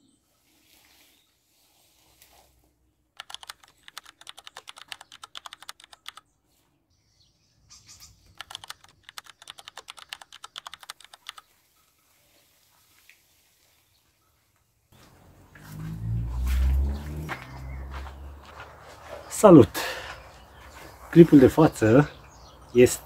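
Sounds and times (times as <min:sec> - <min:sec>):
rapid typing clicks: 0:03.2 - 0:06.2, 0:08.3 - 0:11.5.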